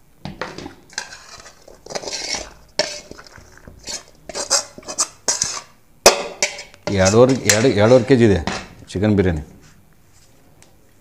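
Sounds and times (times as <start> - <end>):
metal spoon scraping a pot: 0.5 - 8.8.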